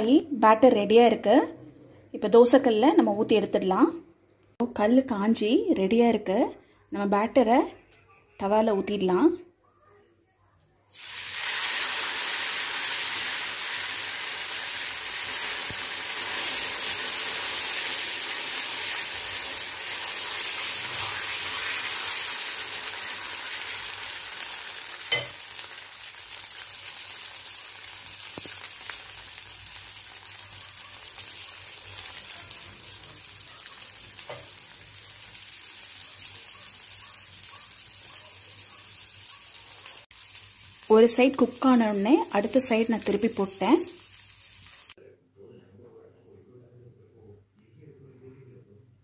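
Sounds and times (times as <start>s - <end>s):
batter sizzling on a griddle: 10.9s - 45.0s.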